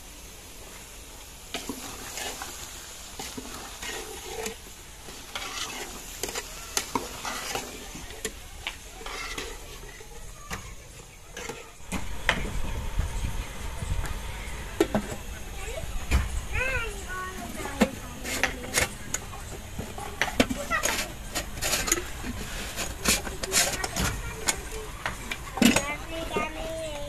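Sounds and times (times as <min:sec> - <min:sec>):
steady sizzle: 0:00.0 - 0:27.0
metal spoon scraping a pot: 0:01.6 - 0:02.6, 0:03.2 - 0:10.2, 0:11.3 - 0:11.8, 0:18.2 - 0:19.2, 0:20.1 - 0:24.6.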